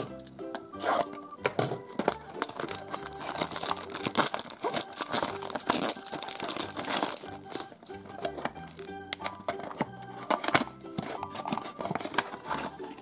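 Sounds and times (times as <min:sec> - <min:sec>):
plastic shrink-wrap crinkling and tearing: 0:01.9 - 0:08.9.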